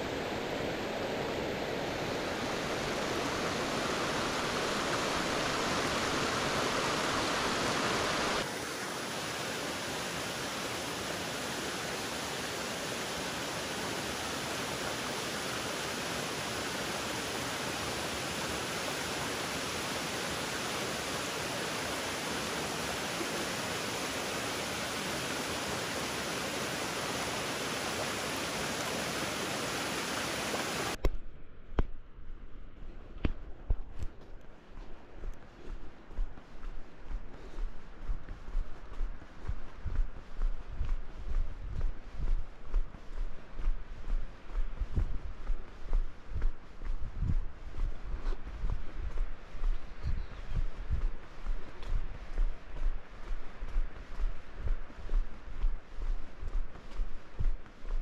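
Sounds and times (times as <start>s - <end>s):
waterfall rushing: 0.0s - 31.0s.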